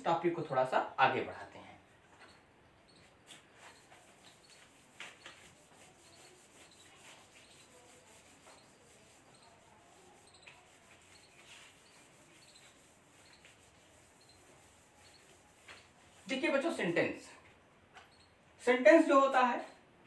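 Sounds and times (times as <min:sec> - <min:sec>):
duster rubbing on whiteboard: 0:02.2 - 0:17.0.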